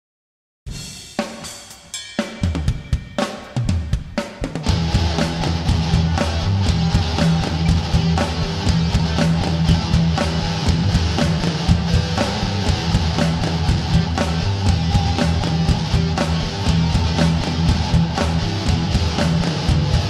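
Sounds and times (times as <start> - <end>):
steady drum beat: 0.7 - 20.0
electric guitar: 4.6 - 20.0.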